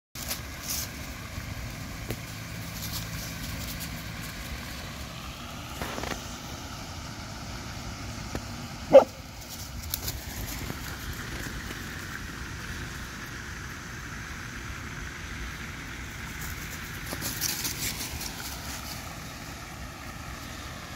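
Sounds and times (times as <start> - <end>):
dry leaves crackling: 0.2 - 20.9
dog barking: 8.9 - 9.2.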